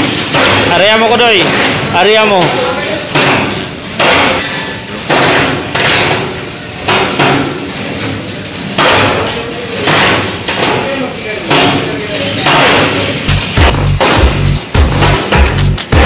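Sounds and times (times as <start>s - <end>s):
steel being struck: 3.2s - 5.6s, 12.5s - 16.0s.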